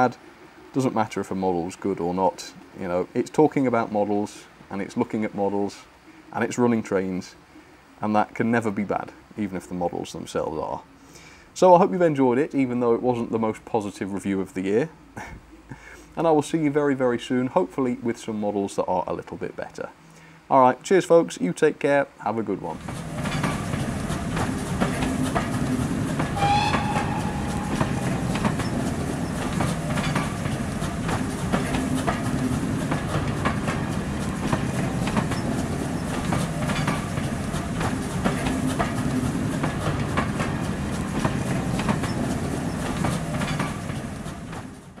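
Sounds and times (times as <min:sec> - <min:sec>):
wheels clicking over rail joints: 0:22.6 - 0:45.0
railway coaches rumbling past: 0:22.7 - 0:45.0
short high-pitched tone: 0:26.4 - 0:28.8.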